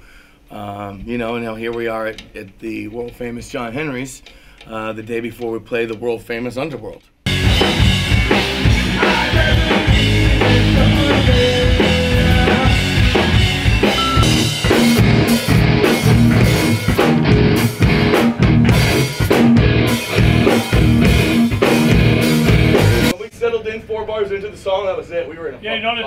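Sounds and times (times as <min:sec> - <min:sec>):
rock band playing: 0:07.3 - 0:23.2.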